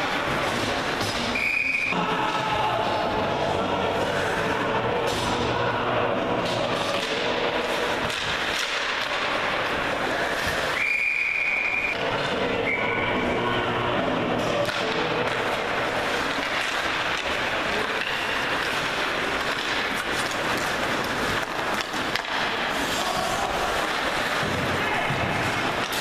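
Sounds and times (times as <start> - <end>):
stick hitting puck: 0.0 - 1.4, 6.4 - 10.8, 14.4 - 26.0
skates scraping on ice: 0.0 - 4.7, 6.2 - 13.4, 14.0 - 26.0
crowd voices: 0.0 - 26.0
referee's whistle blast: 1.4 - 2.0.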